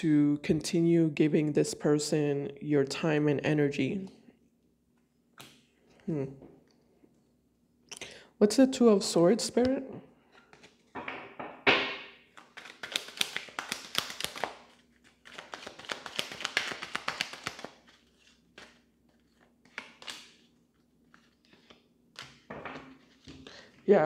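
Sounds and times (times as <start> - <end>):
cards shuffling: 10.4 - 10.9, 12.3 - 23.6.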